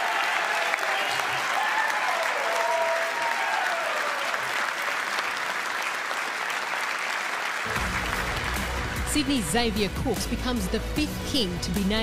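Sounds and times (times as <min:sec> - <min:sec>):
voices cheering: 0:00.0 - 0:05.8
people applauding: 0:00.0 - 0:09.6.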